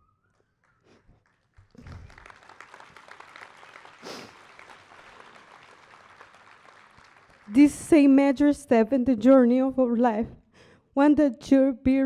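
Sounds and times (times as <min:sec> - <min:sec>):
audience applauding: 0:00.4 - 0:07.7.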